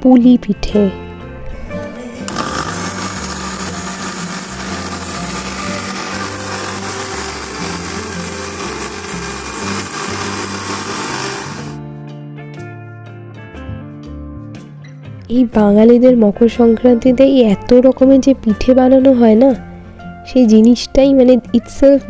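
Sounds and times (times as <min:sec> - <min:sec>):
mixer grinder whirring: 0:01.8 - 0:11.8.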